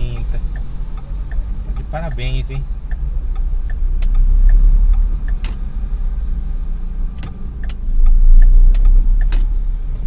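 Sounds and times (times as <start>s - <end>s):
engine and road rumble: 0.0s - 10.0s
faint small ticks: 0.1s - 1.9s, 2.8s - 5.6s.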